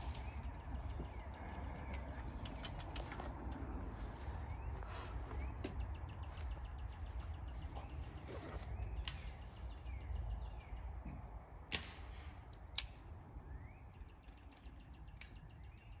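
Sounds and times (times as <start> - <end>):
small birds chirping: 0.0 - 11.5, 12.8 - 16.0
steady low rumble: 0.0 - 14.1
air rifle shot crack: 11.7 - 12.4.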